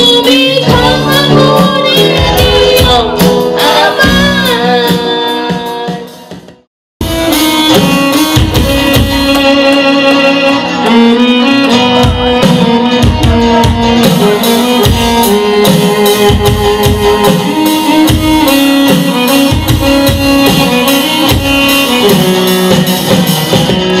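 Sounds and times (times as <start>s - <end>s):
electric guitar melody: 0.0s - 6.3s, 7.0s - 24.0s
steady drum beat: 0.0s - 9.8s, 11.8s - 24.0s
keyboard: 0.0s - 24.0s.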